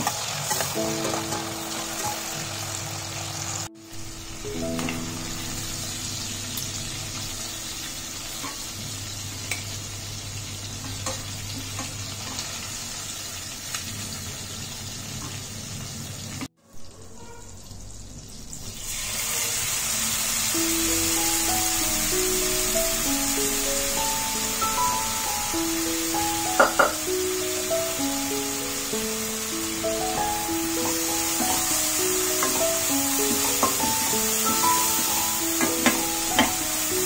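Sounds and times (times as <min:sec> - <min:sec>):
cabbage frying in oil: 0:00.0 - 0:37.0
prawns sizzling in oil: 0:00.0 - 0:37.0
background music sustained notes: 0:00.4 - 0:09.6, 0:20.4 - 0:37.0.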